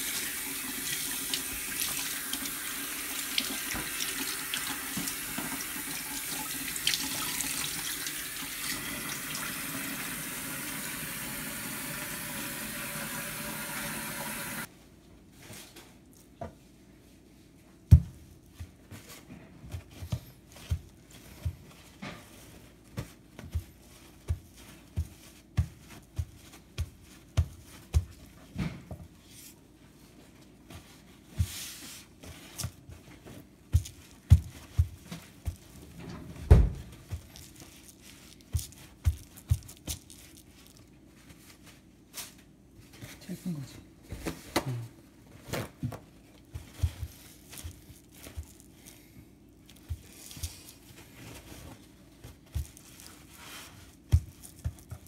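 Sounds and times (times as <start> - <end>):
soft thumps of paper towels: 15.3 - 55.0.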